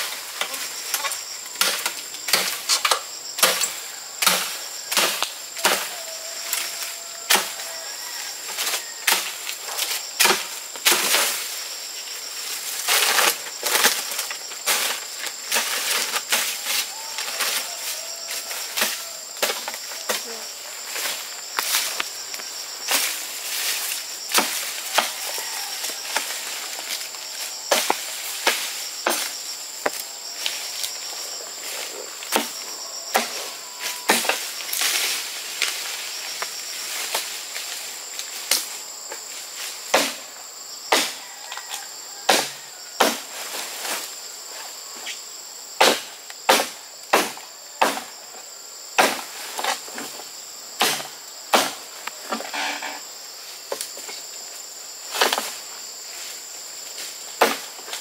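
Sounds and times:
insects droning: 0.0 - 58.0
machete chopping bamboo: 1.6 - 6.0, 10.2 - 11.3, 27.7 - 29.3, 32.3 - 33.4, 34.1 - 34.4, 39.9 - 40.2, 40.9 - 41.2, 42.3 - 43.3, 45.8 - 48.2, 49.0 - 49.3, 50.8 - 51.8, 57.4 - 57.8.

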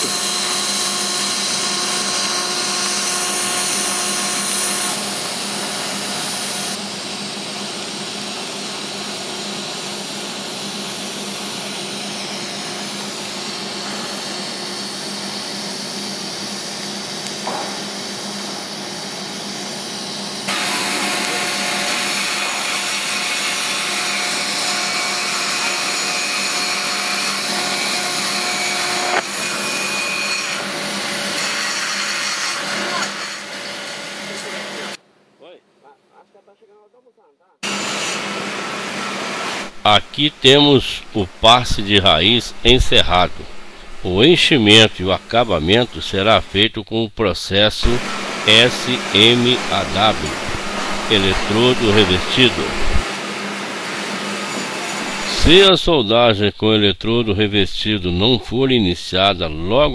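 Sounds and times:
welding arc hiss and buzz: 0.0 - 29.6, 37.6 - 46.6, 47.8 - 55.5
faint hum: 39.6 - 53.0.

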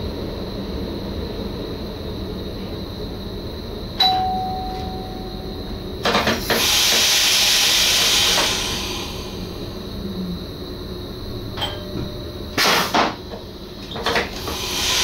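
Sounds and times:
air hissing: 6.0 - 10.0, 12.6 - 15.0.

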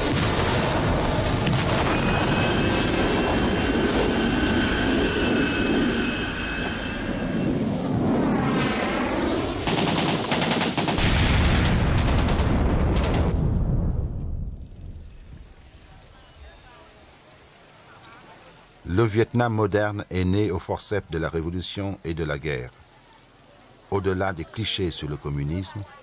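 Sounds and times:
military aircraft flying over: 0.0 - 17.2
automatic gunfire: 9.6 - 13.4.

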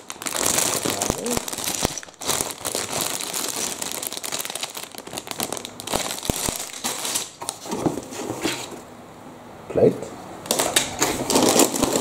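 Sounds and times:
plastic bags crinkling: 0.0 - 8.2, 10.5 - 12.0.

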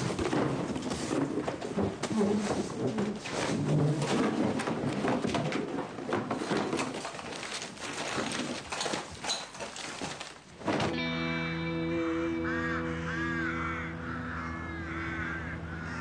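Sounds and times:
objects clattering on a table: 0.0 - 11.0
sustained drone of held tones: 11.0 - 16.0.

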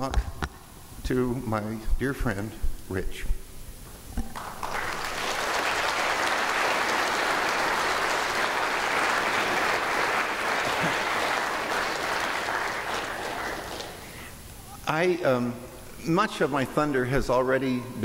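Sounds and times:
audience applauding: 4.3 - 14.3.

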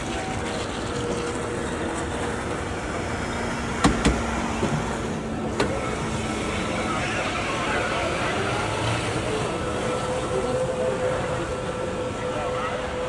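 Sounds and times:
sharp knocks: 3.8 - 4.8.

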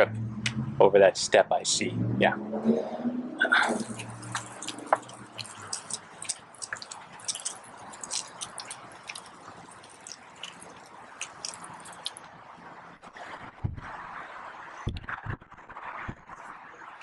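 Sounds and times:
small ticks and clicks: 4.0 - 12.3.

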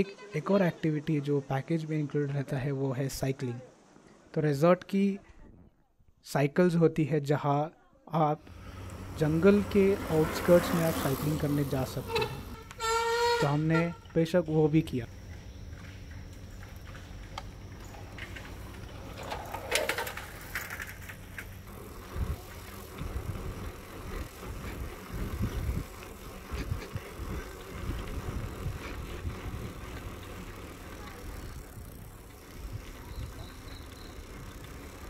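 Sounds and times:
bicycle rolling on pavement: 8.4 - 35.0
wind rumble on microphone: 22.0 - 30.2
birds calling: 32.6 - 35.0.

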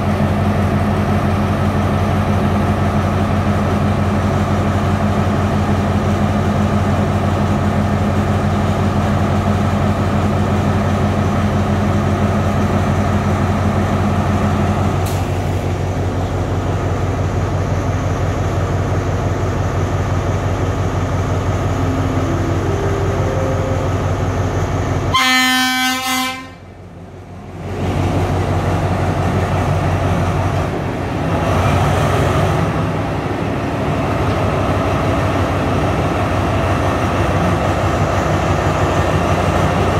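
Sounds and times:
locomotive engine drone: 0.0 - 39.9
locomotive horn blast: 21.8 - 26.8.

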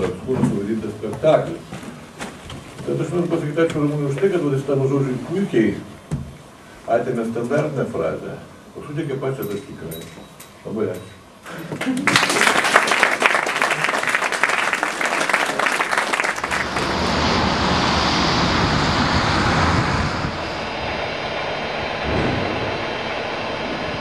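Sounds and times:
audience applauding: 11.8 - 17.0
steady rushing noise: 16.2 - 24.0.

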